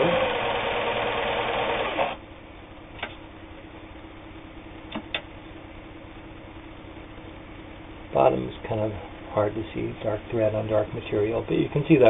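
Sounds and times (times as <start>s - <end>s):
sewing machine stitching: 0.0s - 2.2s
faint steady hum: 0.0s - 12.0s.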